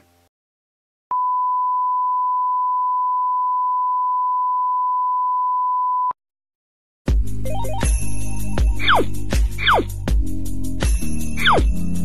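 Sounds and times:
music with bell-like notes: 7.4s - 9.5s, 10.2s - 12.0s.

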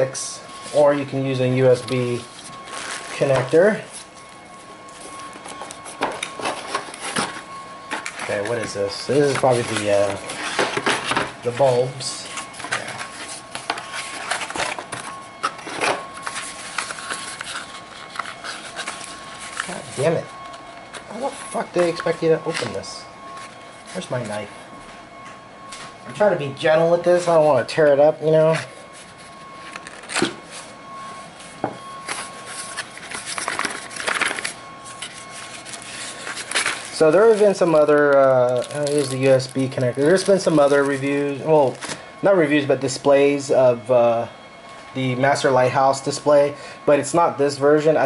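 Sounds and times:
cardboard scraping and rustling: 4.9s - 22.8s, 32.0s - 42.0s.

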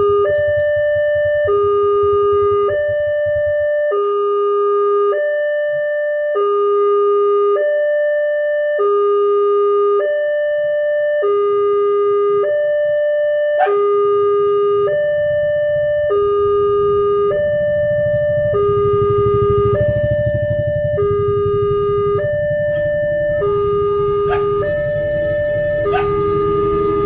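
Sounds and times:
motorcycles idling: 0.0s - 3.9s, 13.6s - 27.0s
level crossing two-tone alarm: 0.0s - 27.0s.

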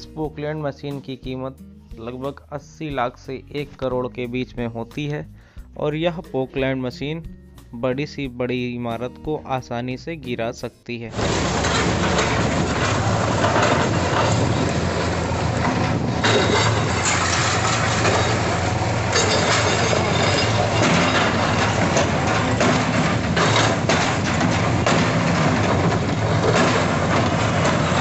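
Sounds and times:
diesel excavator engine running: 11.1s - 28.0s
masonry cracking and crashing: 11.1s - 28.0s.

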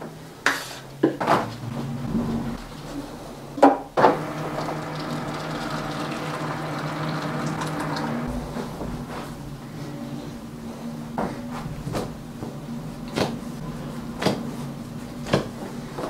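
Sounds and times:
water pouring into bowl: 4.1s - 8.3s.

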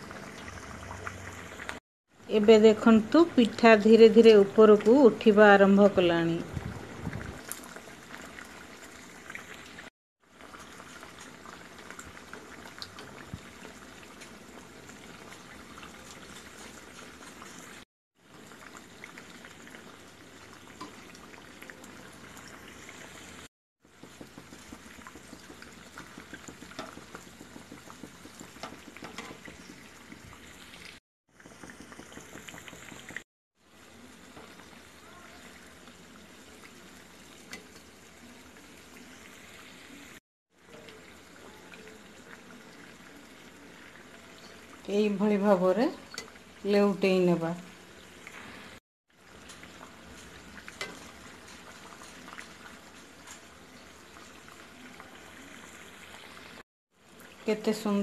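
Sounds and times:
food deep-frying in hot oil: 0.0s - 58.0s
oil crackling: 7.1s - 33.2s, 47.9s - 56.6s.

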